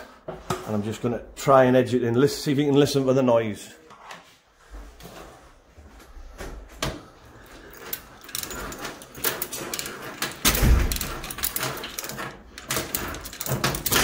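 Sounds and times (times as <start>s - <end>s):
chain rattling and clicking: 7.4s - 14.0s.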